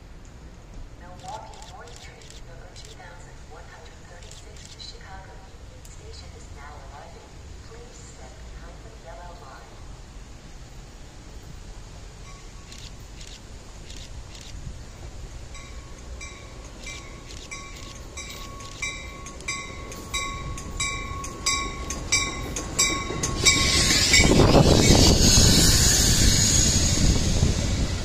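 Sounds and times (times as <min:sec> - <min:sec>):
train passing: 0:00.0 - 0:28.0
crossing bell ringing: 0:12.2 - 0:12.7, 0:15.5 - 0:25.6.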